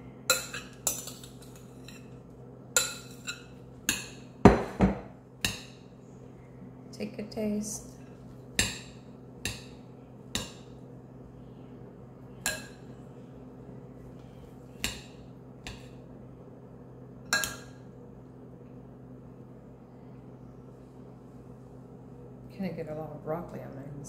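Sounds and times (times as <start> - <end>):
steady low hum: 0.0 - 24.0
metal spoon clinking on a dish: 0.3 - 2.2, 2.8 - 4.2, 12.4 - 12.9.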